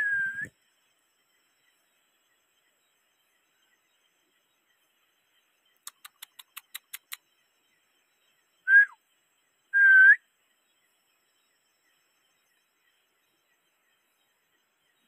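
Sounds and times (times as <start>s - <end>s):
loud clear whistles: 0.0s - 0.5s, 8.7s - 9.0s, 9.8s - 10.2s
faint sharp clicks: 5.8s - 7.3s.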